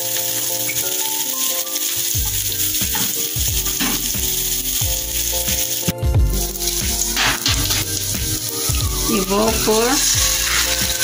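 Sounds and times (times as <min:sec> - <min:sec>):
onion sizzling in oil: 0:00.0 - 0:11.0
background music with beat: 0:00.1 - 0:11.0.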